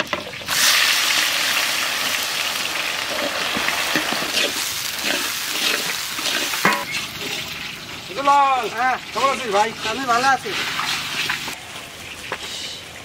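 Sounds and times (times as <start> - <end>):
onions sizzling in hot oil: 0.0 - 13.0
spatula scraping through onions: 3.0 - 8.0, 8.6 - 11.6.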